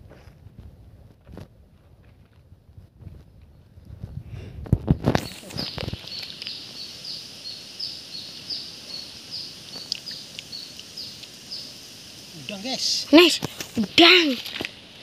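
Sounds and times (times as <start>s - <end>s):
bird chirping: 4.9s - 14.3s
steady high hiss: 4.9s - 15.0s.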